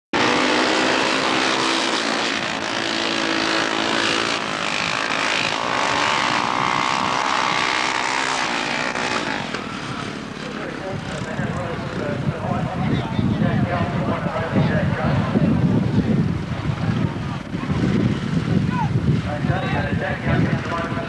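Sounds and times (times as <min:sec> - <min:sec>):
motorcycles racing past revving: 0:00.2 - 0:10.5.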